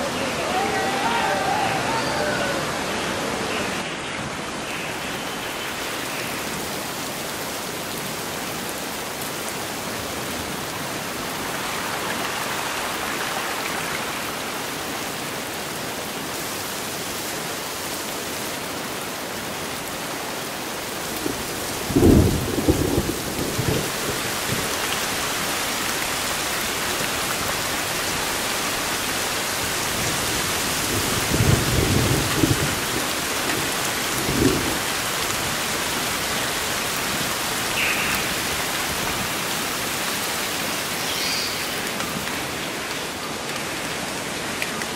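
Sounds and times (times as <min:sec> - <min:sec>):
heavy rain on foliage: 0:00.0 - 0:44.9
low thunder claps: 0:21.3 - 0:24.7, 0:30.9 - 0:33.0.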